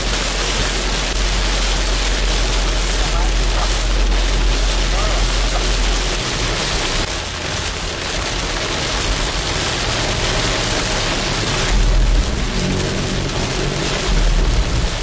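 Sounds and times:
heavy rain on car: 0.0s - 15.0s
low vehicle rumble: 0.0s - 15.0s
louder low rumble: 10.8s - 15.0s.

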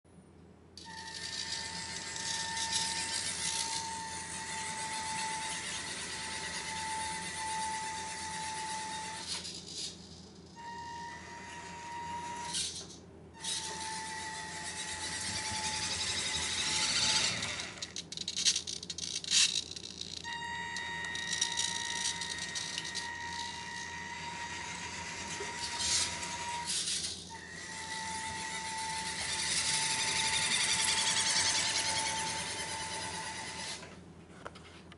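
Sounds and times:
toy truck motor whine: 0.8s - 33.9s
sharp clicks and rattles: 15.4s - 20.3s.

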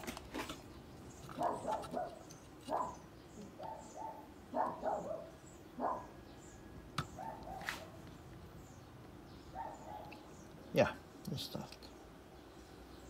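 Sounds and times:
dog barking: 1.4s - 3.0s, 3.6s - 6.2s, 7.2s - 8.0s, 9.5s - 10.2s.

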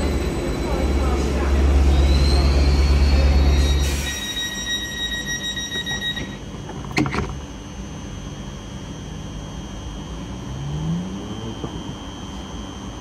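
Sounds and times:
electronic warning tone: 1.9s - 6.5s.

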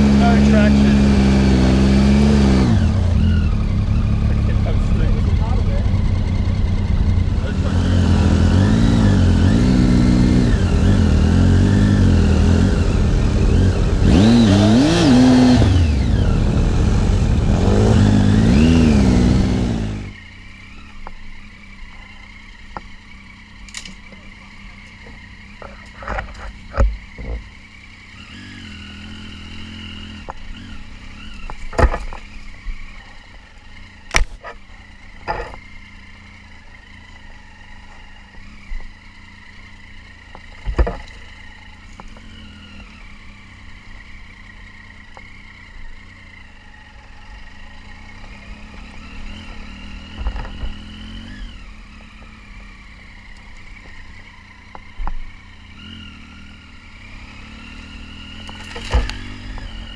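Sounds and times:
motorcycle engine at low revs: 0.0s - 59.9s
motorcycle knocking and clattering: 23.6s - 27.6s, 31.5s - 32.4s, 40.2s - 42.3s, 50.1s - 50.8s.

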